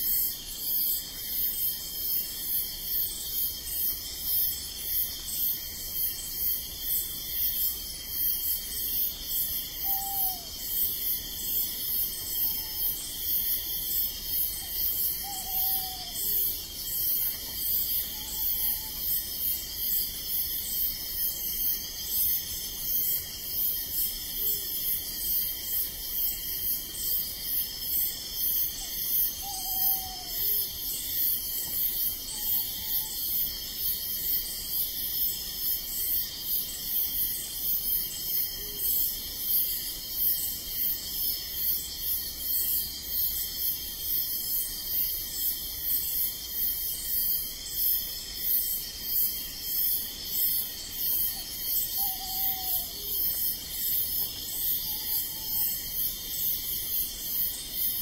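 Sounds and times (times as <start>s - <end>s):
crickets chirping: 0.0s - 58.0s
insects trilling: 0.0s - 58.0s
owl hoots: 9.8s - 10.7s, 12.4s - 13.0s, 14.6s - 16.5s, 18.0s - 19.2s, 28.8s - 30.6s, 32.3s - 33.2s, 51.3s - 53.4s, 54.8s - 55.8s.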